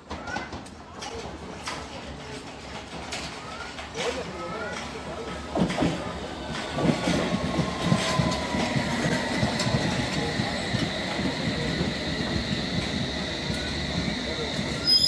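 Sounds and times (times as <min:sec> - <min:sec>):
wheels clacking over rail joints: 0:00.1 - 0:15.0
electric train rumbling and whining: 0:04.3 - 0:15.0
high squeal: 0:13.6 - 0:15.0.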